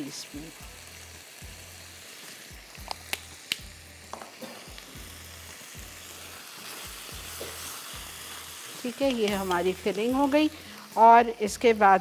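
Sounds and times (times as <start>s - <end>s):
food sizzling in a frying pan: 0.0s - 12.0s.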